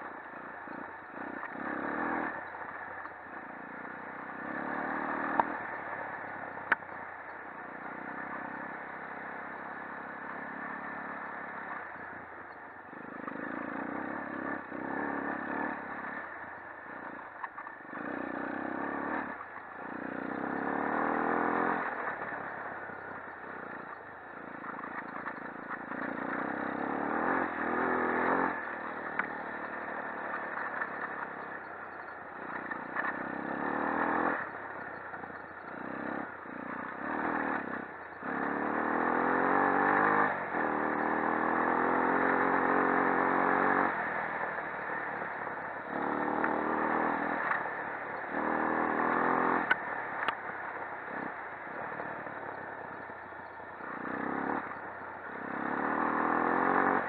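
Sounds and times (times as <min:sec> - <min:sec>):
quad engine revving: 0:00.7 - 0:05.8, 0:12.9 - 0:16.2, 0:17.8 - 0:22.6, 0:24.5 - 0:34.6, 0:35.6 - 0:50.4, 0:53.8 - 0:57.0.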